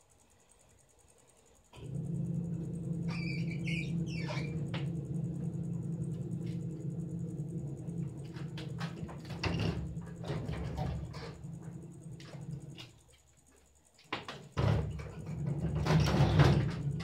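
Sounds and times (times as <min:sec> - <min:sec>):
small motor humming: 0:01.8 - 0:12.8.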